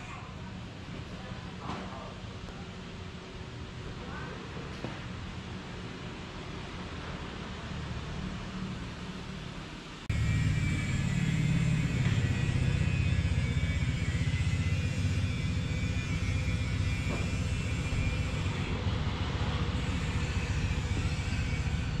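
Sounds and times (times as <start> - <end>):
pulsing mechanical rumble: 10.1 - 22.0.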